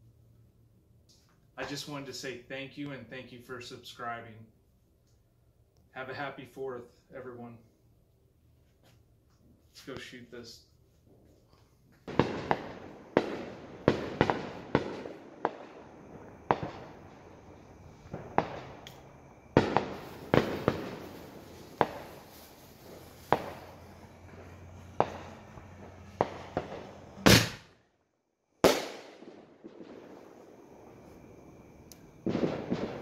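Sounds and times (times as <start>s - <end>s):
faint hiss: 0.0s - 27.8s, 28.6s - 33.0s
firework bangs: 12.0s - 27.8s, 28.6s - 33.0s.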